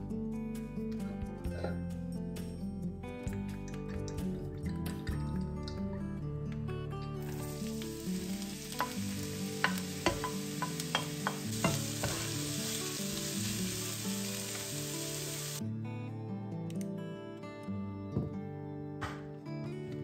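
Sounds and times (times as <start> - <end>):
onions sizzling in oil: 7.2 - 15.6.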